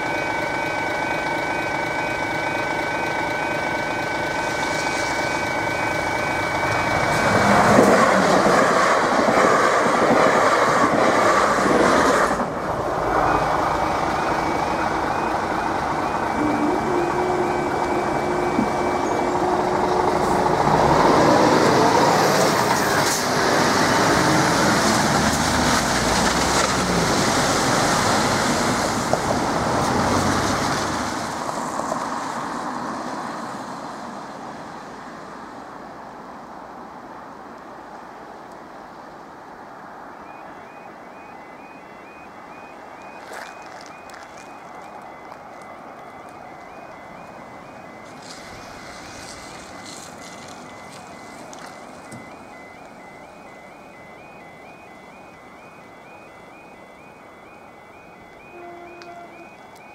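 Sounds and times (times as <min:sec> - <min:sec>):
short repeating alarm beeps: 0:00.0 - 0:08.1, 0:13.3 - 0:20.6, 0:40.2 - 0:59.9
level crossing alarm tone: 0:00.0 - 0:31.0, 0:40.2 - 0:59.9
passing vehicle rush: 0:04.0 - 0:35.7.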